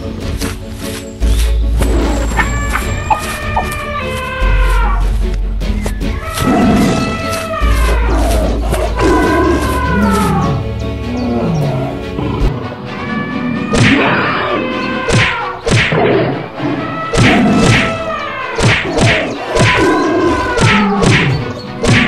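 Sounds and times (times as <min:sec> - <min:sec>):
background music: 0:00.0 - 0:22.0
animal growls and roars: 0:06.1 - 0:21.4.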